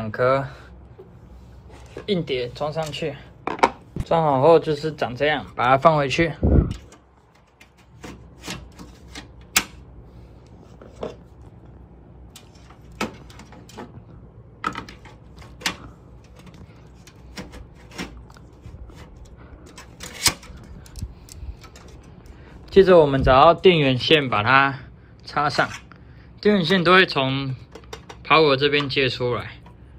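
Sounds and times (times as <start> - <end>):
plastic and metal clicks and knocks: 27.7 - 28.9.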